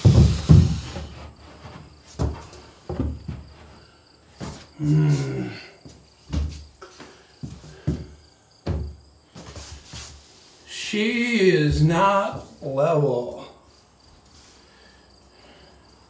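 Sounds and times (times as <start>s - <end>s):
wooden cabinet thumping: 0.0s - 1.2s, 2.2s - 3.5s, 8.6s - 9.0s
person grunting: 4.8s - 5.8s.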